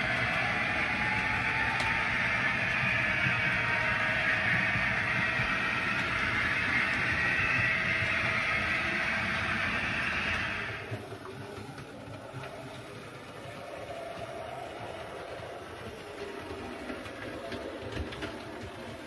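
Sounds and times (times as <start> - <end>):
model train running past: 0.0 - 19.0.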